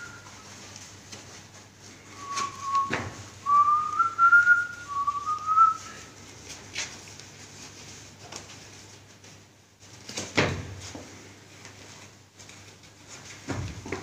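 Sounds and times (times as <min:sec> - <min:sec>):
person whistling a tune: 0:00.0 - 0:00.4, 0:02.1 - 0:06.1.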